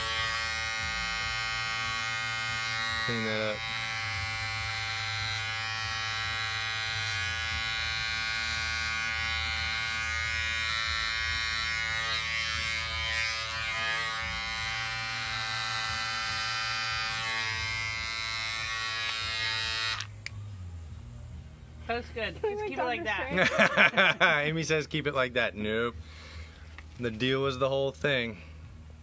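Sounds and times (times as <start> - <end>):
hair clippers buzzing: 0.0 - 20.3, 23.4 - 24.3.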